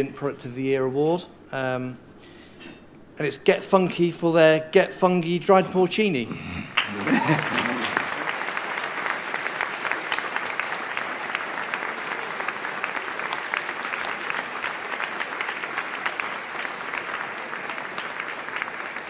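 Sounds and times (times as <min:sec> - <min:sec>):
audience applauding: 0:06.7 - 0:19.0.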